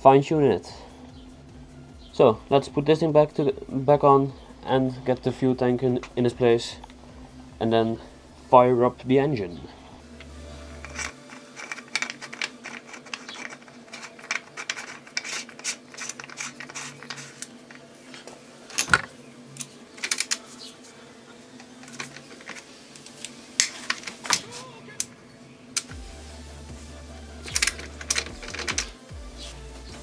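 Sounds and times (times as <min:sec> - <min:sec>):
ratchet wrench clicking: 0:27.4 - 0:29.0.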